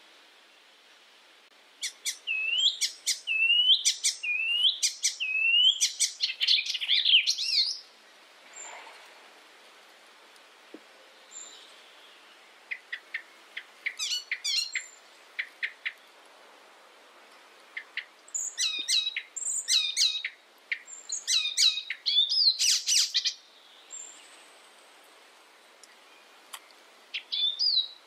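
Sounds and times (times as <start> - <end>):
warbler singing: 1.8 - 7.9, 11.1 - 16.2, 17.3 - 24.7, 25.9 - 28.0.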